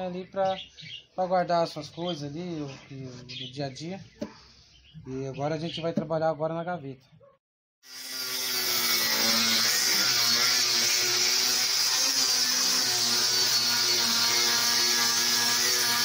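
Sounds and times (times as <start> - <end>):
angle grinder sanding wood: 7.8 - 16.0.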